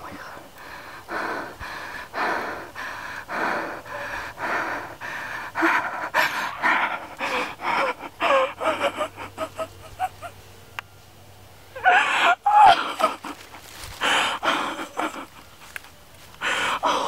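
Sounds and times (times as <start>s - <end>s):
person panting and gasping: 0.5s - 10.3s, 11.8s - 17.0s
short whimpering cries: 11.8s - 13.5s.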